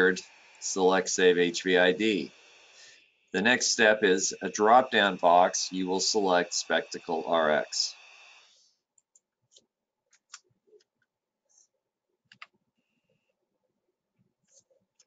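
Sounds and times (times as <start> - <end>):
computer mouse clicks: 12.3 - 12.5.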